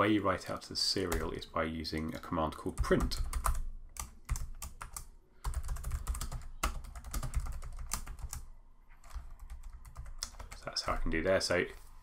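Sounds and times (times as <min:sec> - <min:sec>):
computer keyboard typing: 0:02.8 - 0:10.6.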